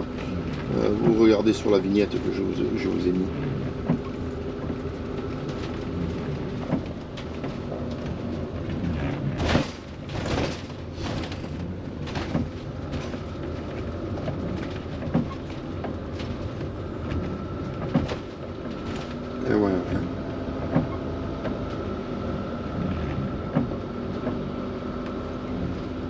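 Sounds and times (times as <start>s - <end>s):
knocks and rattles: 0.0s - 20.0s
engine and road noise: 0.0s - 26.0s.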